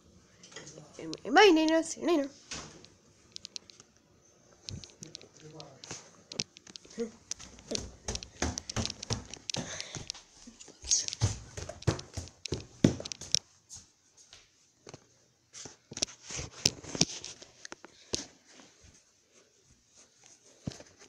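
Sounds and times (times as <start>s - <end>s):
footsteps: 4.7s - 14.5s.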